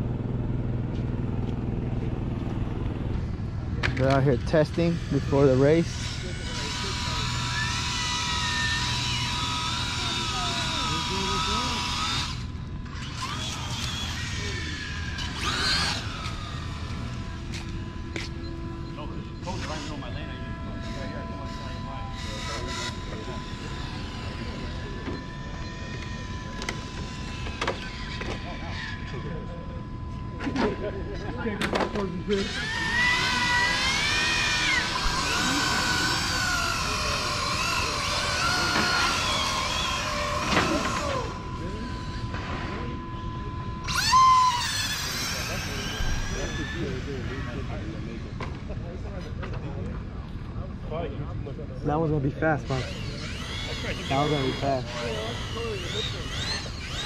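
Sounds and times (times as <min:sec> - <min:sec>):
electric motor whining: 0:01.4 - 0:48.8, 0:52.4 - 0:57.0.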